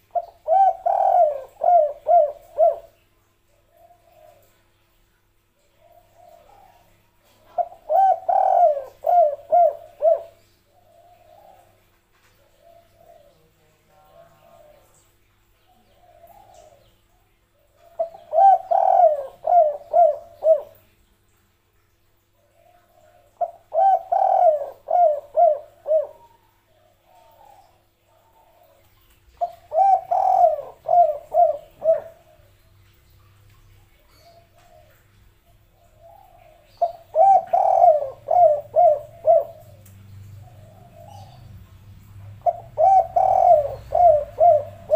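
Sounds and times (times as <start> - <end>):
dove cooing: 0.0 - 3.0, 3.7 - 4.6, 5.7 - 11.8, 16.0 - 16.9, 17.7 - 20.8, 22.5 - 28.8, 29.4 - 32.7, 33.9 - 44.9.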